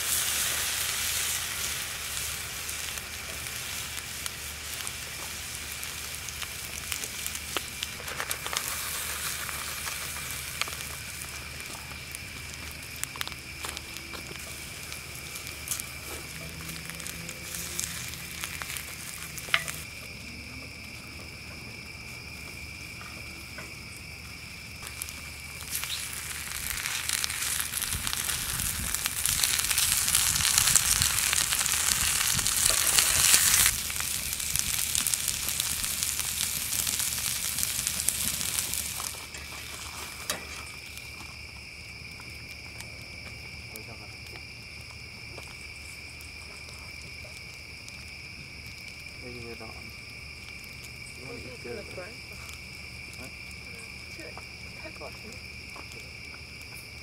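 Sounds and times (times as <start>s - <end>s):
food sizzling in a skillet: 0.0s - 20.0s, 24.8s - 41.1s.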